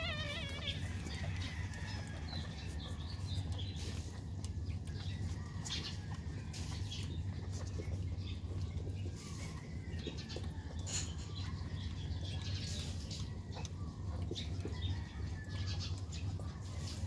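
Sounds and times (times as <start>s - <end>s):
puppy whining: 0.0s - 2.7s
faint squeaks and clicks: 0.0s - 17.0s.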